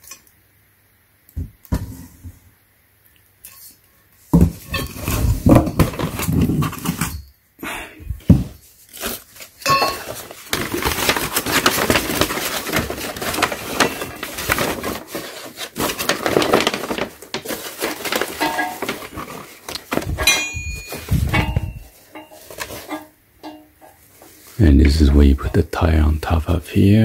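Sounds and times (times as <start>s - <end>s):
packing paper crumpling: 8.8s - 23.0s
metal parts clinking: 20.0s - 24.0s.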